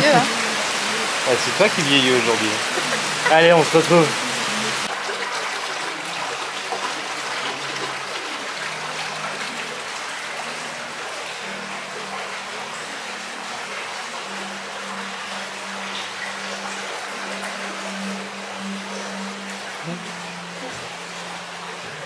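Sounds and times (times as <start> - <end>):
heavy rain pouring: 0.0 - 22.0.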